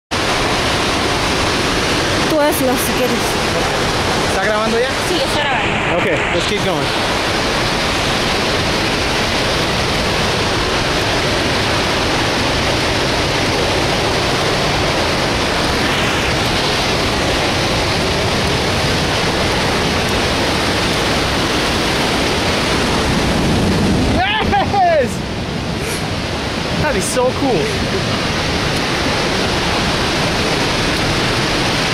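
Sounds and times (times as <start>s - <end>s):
waterfall rushing: 0.1s - 31.9s.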